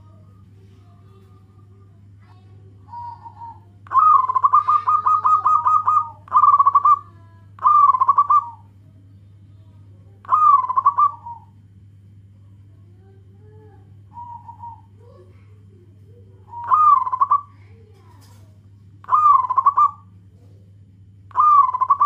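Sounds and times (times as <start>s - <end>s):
faint low hum: 0.0s - 22.0s
dove cooing: 1.0s - 8.8s, 10.2s - 11.6s, 13.4s - 18.4s, 19.0s - 22.0s.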